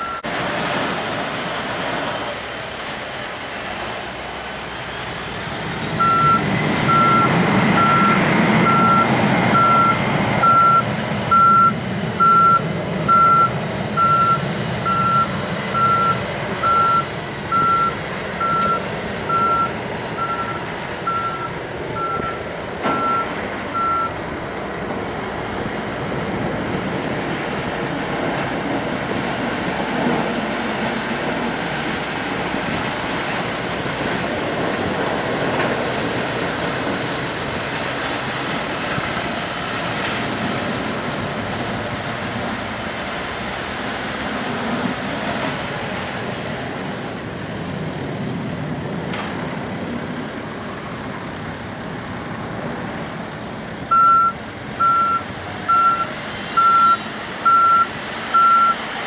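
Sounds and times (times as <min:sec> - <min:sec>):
reversing alarm beeping: 0:00.0 - 0:00.3, 0:05.9 - 0:24.2, 0:53.9 - 0:58.8
jet engines rumbling: 0:00.0 - 0:59.0.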